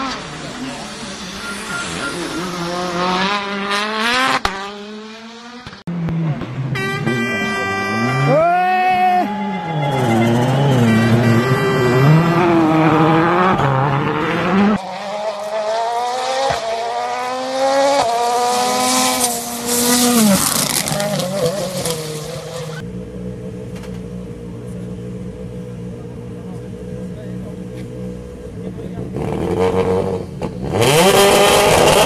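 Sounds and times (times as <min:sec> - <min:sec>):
car accelerating through gears: 0:00.0 - 0:06.7, 0:09.8 - 0:22.9, 0:28.6 - 0:32.0
rally car engine revving: 0:00.0 - 0:32.0.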